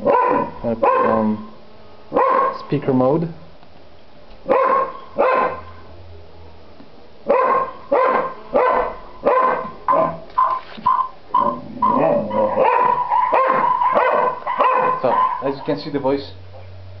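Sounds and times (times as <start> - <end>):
dog barking: 0.0 - 2.6, 4.5 - 5.9, 7.3 - 10.2, 11.4 - 15.9.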